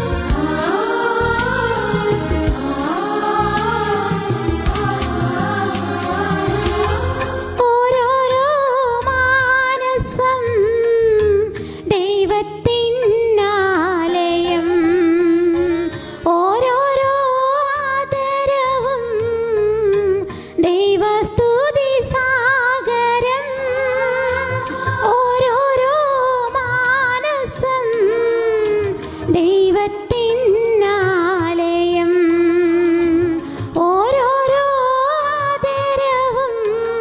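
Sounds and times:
instrumental accompaniment: 0:00.0 - 0:37.0
person singing a hymn: 0:00.3 - 0:08.6.

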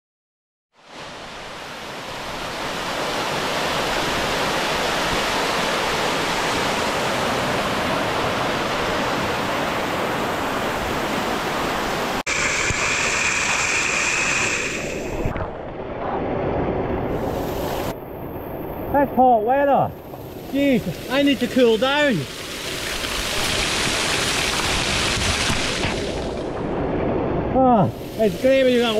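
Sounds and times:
water falling close by: 0:01.5 - 0:15.1, 0:20.5 - 0:26.4, 0:27.6 - 0:28.9
waterfall rushing over rock: 0:02.1 - 0:15.1, 0:20.5 - 0:26.3.

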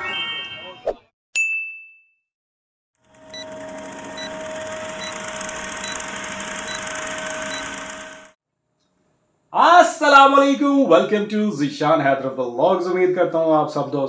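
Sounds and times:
bell ding: 0:01.4 - 0:02.2
film projector hiss and crackle: 0:03.0 - 0:08.4.

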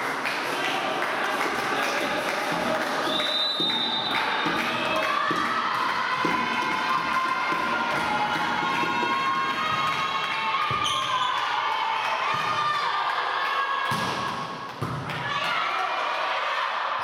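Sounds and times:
voices in a hall: 0:00.0 - 0:17.0
volleyball bouncing on floor: 0:13.9 - 0:15.4.

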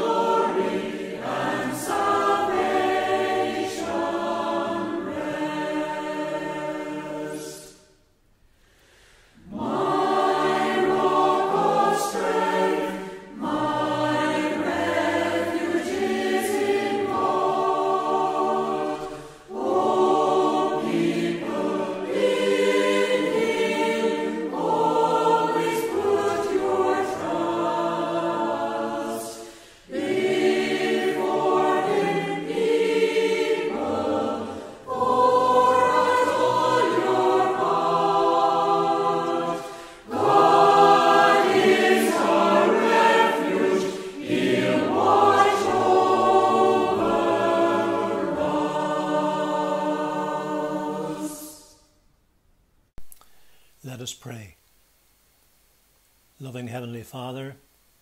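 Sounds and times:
group singing unaccompanied: 0:00.0 - 0:08.0, 0:09.3 - 0:52.0
singers breathing: 0:08.4 - 0:09.5, 0:19.0 - 0:19.5, 0:29.4 - 0:29.9, 0:39.6 - 0:40.1, 0:53.2 - 0:53.8.

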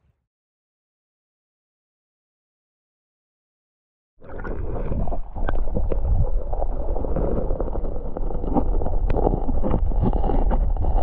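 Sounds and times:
muffled underwater river rushing: 0:04.2 - 0:11.0.

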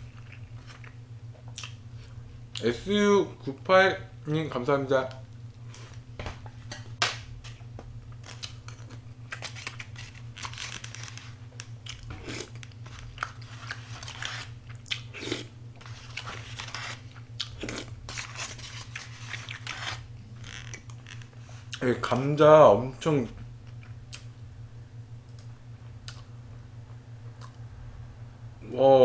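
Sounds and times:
person chewing and crunching food: 0:00.0 - 0:02.6, 0:08.1 - 0:21.8, 0:25.3 - 0:26.3
steady low hum: 0:00.0 - 0:29.0.

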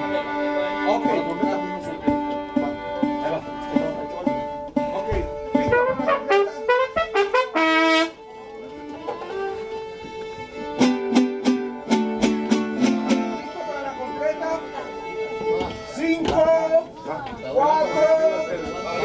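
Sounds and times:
mariachi band playing: 0:00.0 - 0:19.0
trumpet phrases: 0:05.5 - 0:08.3.

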